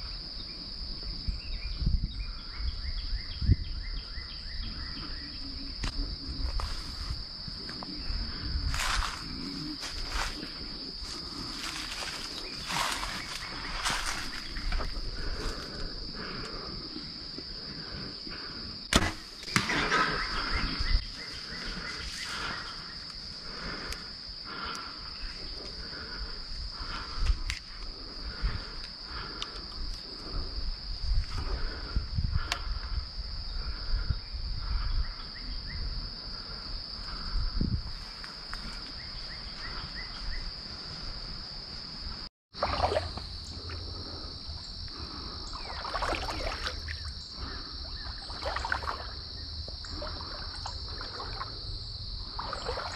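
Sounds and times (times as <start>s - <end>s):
high-pitched insect chorus: 0.0s - 52.9s
rustling through brush: 5.9s - 15.9s.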